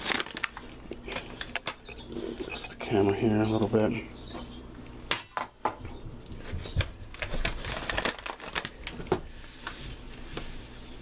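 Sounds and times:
paper bag crinkling: 0.0s - 2.3s, 6.5s - 11.0s.

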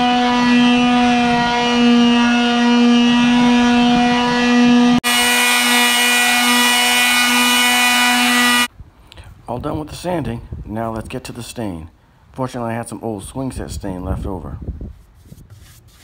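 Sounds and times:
palm sander buzzing on wood: 0.0s - 8.7s.

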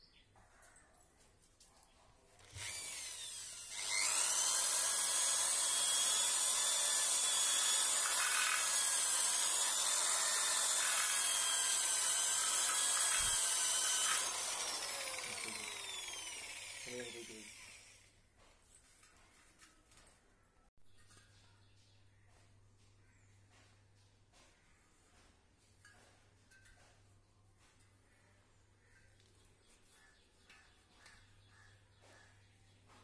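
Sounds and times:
electric drill whining: 2.4s - 18.1s.

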